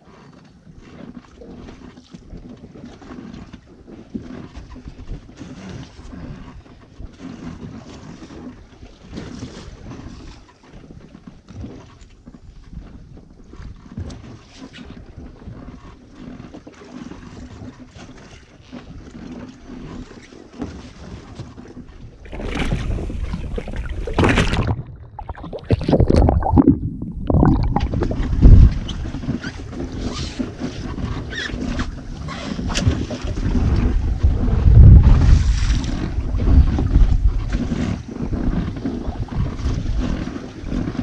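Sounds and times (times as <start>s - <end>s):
wind: 0.0s - 41.0s
water rushing: 21.9s - 29.6s.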